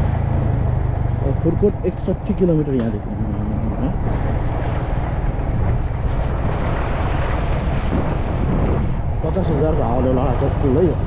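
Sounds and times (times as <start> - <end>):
motorcycle engine: 0.0 - 11.0
road noise: 0.0 - 11.0
wind rushing over microphone: 1.6 - 11.0.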